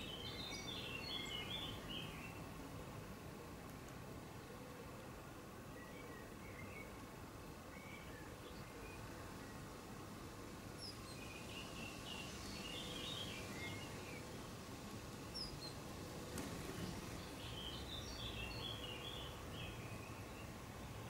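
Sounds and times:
small birds chirping: 0:00.0 - 0:02.6, 0:05.7 - 0:10.0, 0:10.7 - 0:21.0
outdoor background hiss: 0:00.0 - 0:21.0.

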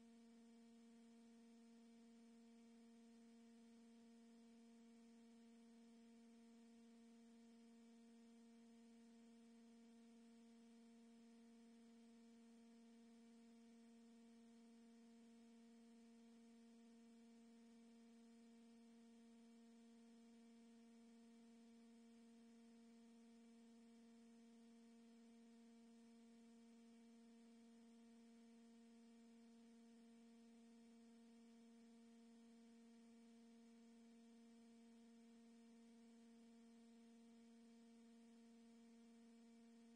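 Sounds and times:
faint electronic hum: 0:00.0 - 0:39.9.

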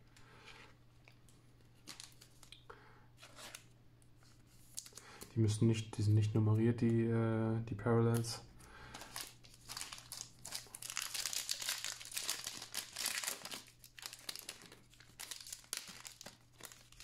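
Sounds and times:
foil wrapper crinkling and tearing: 0:09.0 - 0:17.0.

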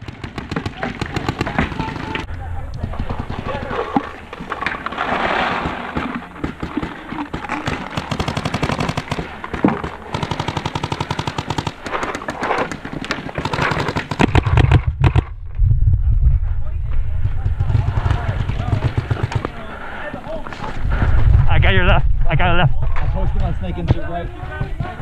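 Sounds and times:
paintball markers firing: 0:06.0 - 0:15.3, 0:17.6 - 0:19.6
loud low rumble: 0:14.4 - 0:19.0.

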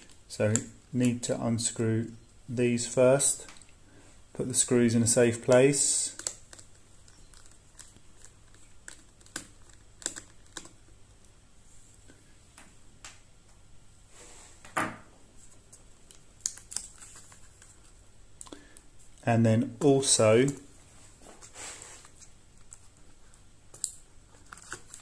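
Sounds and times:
scraping rustle: 0:20.9 - 0:23.0.

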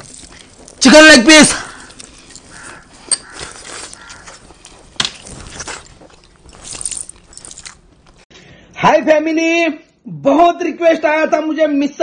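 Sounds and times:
man chewing food: 0:00.0 - 0:00.8, 0:01.6 - 0:08.2.

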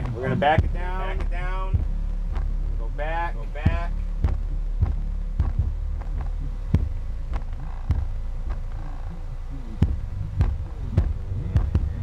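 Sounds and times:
subwoofer playing deep bass beat: 0:00.0 - 0:12.0.

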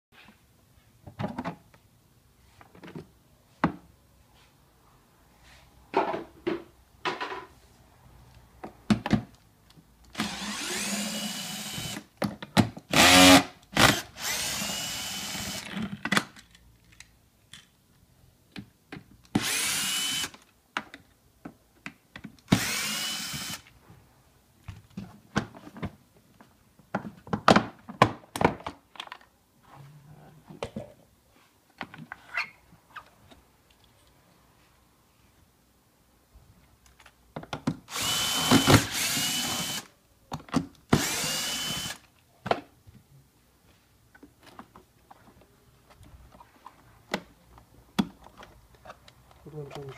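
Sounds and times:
cordless drill motor running: 0:10.2 - 0:12.0, 0:12.9 - 0:15.6, 0:19.4 - 0:20.4, 0:22.5 - 0:23.6, 0:37.9 - 0:39.9, 0:41.0 - 0:42.0
plastic parts clicking and knocking: 0:15.6 - 0:17.8, 0:36.8 - 0:37.9.

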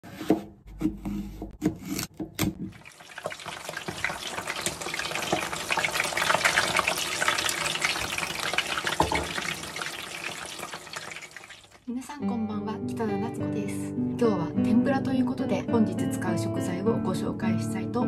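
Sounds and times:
knife cutting on cutting board: 0:00.0 - 0:02.6
vegetables frying in hot oil: 0:02.8 - 0:11.8.

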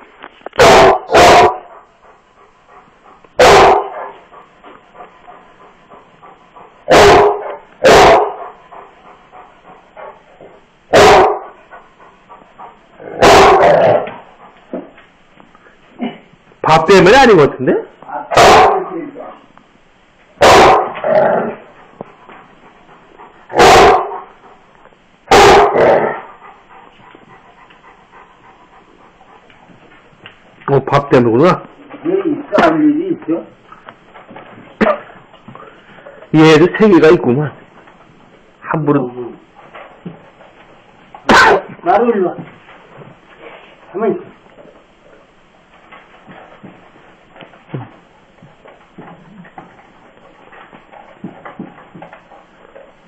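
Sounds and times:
dog barking: 0:00.6 - 0:01.7, 0:03.4 - 0:04.2, 0:06.9 - 0:08.5, 0:10.9 - 0:11.6, 0:13.0 - 0:14.1, 0:18.2 - 0:19.0, 0:20.4 - 0:21.2, 0:23.5 - 0:24.3, 0:25.3 - 0:26.3, 0:41.3 - 0:41.8.

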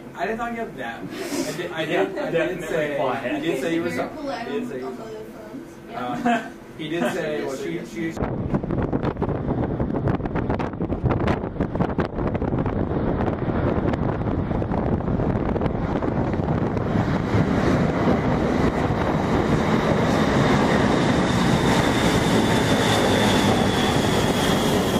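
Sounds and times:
high jet whine: 0:00.0 - 0:24.9
jet engines roaring: 0:06.6 - 0:24.9.

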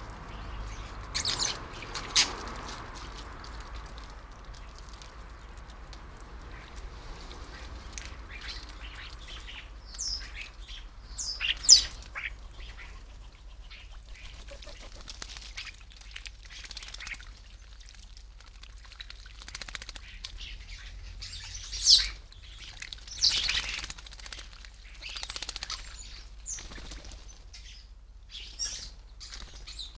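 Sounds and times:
starlings calling: 0:00.0 - 0:02.5, 0:08.2 - 0:14.9, 0:20.4 - 0:23.9, 0:27.5 - 0:29.9.

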